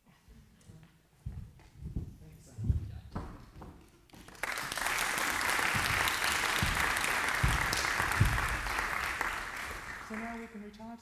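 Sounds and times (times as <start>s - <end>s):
low thumps: 1.2s - 3.8s, 5.6s - 9.9s
audience applauding: 4.2s - 10.6s.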